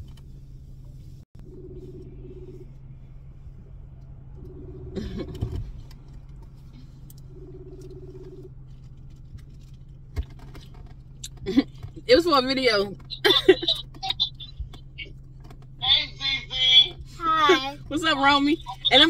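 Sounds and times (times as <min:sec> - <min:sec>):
car interior hum: 0:00.0 - 0:19.0
phone ringback tone: 0:07.3 - 0:08.5.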